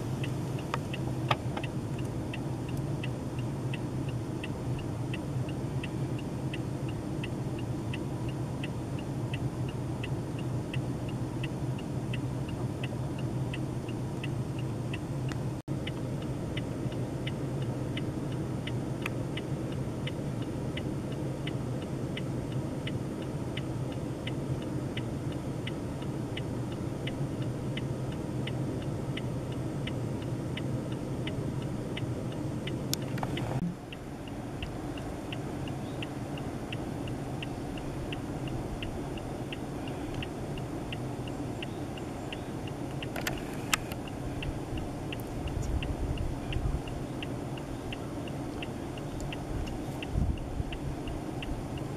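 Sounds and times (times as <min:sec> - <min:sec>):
faint regular high tick: 0:00.0 - 0:51.9
low outdoor rumble: 0:00.0 - 0:51.9
sharp clicks: 0:41.6 - 0:45.9.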